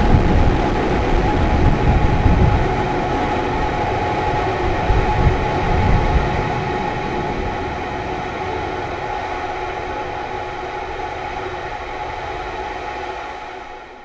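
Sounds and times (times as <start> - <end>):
rocket engine roar: 0.0 - 14.0.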